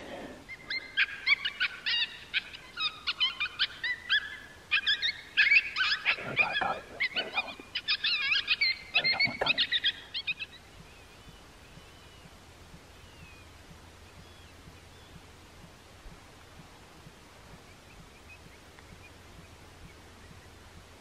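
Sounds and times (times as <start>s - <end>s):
coyotes yipping and howling: 0.0s - 15.3s.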